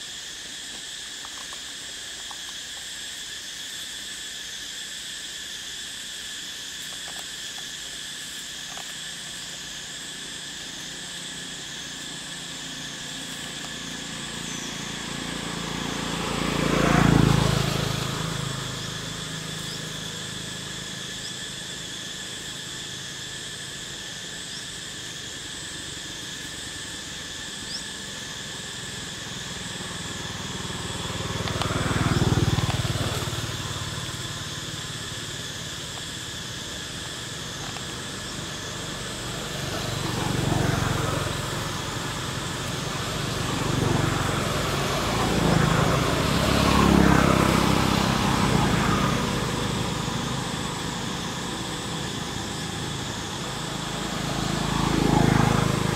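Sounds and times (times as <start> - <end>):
steady high-pitched whine: 0.0 - 55.9
vehicles passing by: 6.9 - 55.9.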